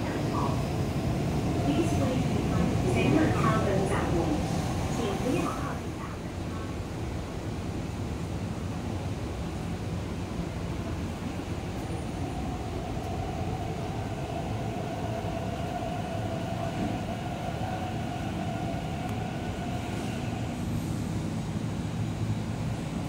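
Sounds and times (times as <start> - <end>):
electric train whine: 7.2 - 23.0.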